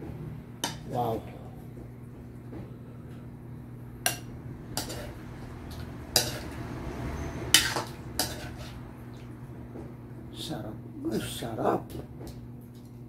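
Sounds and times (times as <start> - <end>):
low hum: 0.0 - 11.2
metal ladle clinking and scraping: 4.8 - 5.1, 6.2 - 6.6, 7.6 - 8.8.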